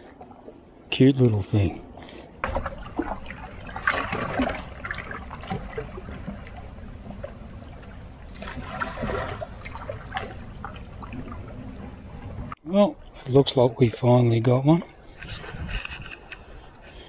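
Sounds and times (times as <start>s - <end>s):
water lapping against rocks: 2.1s - 12.6s.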